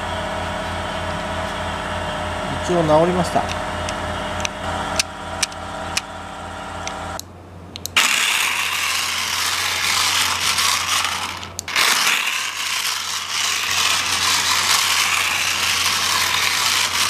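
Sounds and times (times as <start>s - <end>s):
toy car motor whirring: 7.9s - 17.0s.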